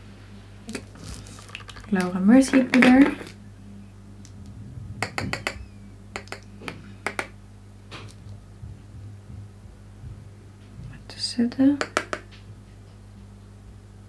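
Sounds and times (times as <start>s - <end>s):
clicks and taps on jar: 6.2s - 6.5s, 11.8s - 12.3s.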